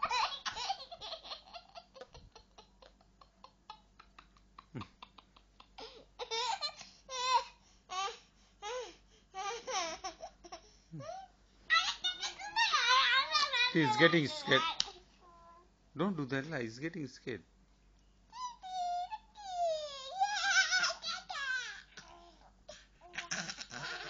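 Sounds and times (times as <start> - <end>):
baby laughing: 0.0 - 7.4, 9.4 - 15.0, 18.4 - 22.3, 23.0 - 24.0.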